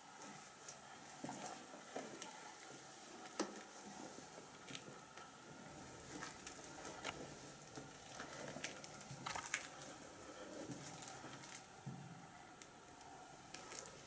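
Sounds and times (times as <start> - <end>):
footsteps crunching on debris: 8.0 - 9.9.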